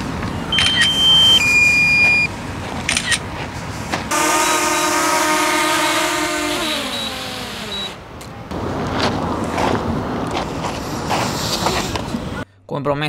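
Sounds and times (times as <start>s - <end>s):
electronic beep tones: 0.5s - 2.3s
motor hum: 4.2s - 8.5s.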